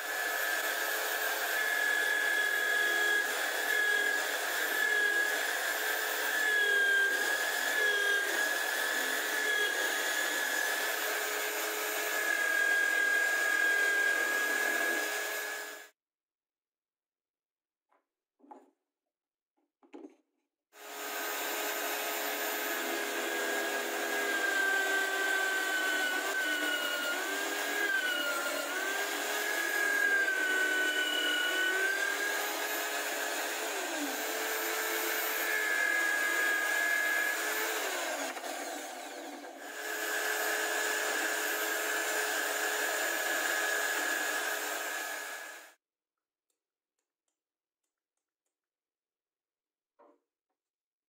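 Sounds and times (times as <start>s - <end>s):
electric drill boring into wood: 0.0s - 15.9s, 20.8s - 45.8s.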